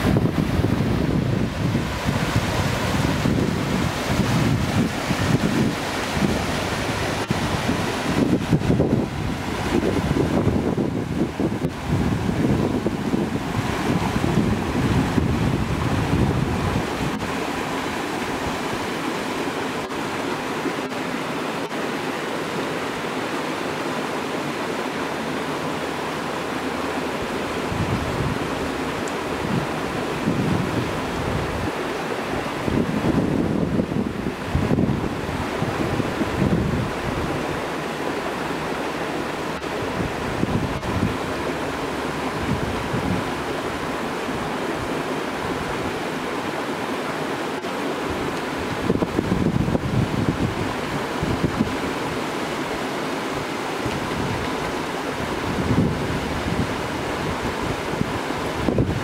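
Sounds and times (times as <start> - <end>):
wind rumble on microphone: 0.0 - 19.0, 26.7 - 46.1, 48.0 - 59.0
waterfall rushing: 0.0 - 59.0.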